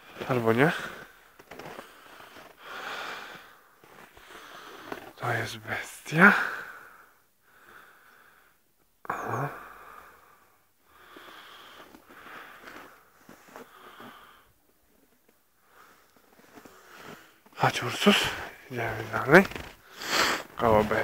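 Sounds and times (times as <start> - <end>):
wheezy breathing and sniffing: 19.8 - 20.6.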